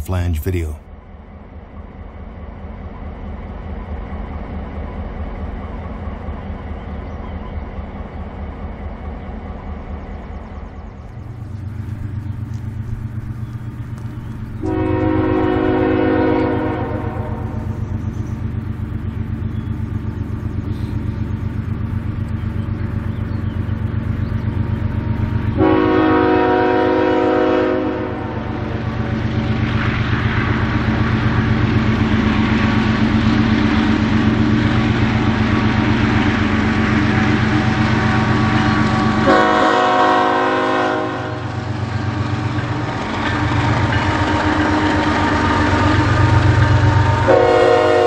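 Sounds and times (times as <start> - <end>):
diesel locomotive drone: 0.0 - 48.0
train air horn blasts: 14.6 - 17.6, 25.6 - 28.8, 38.6 - 41.5, 44.2 - 48.0.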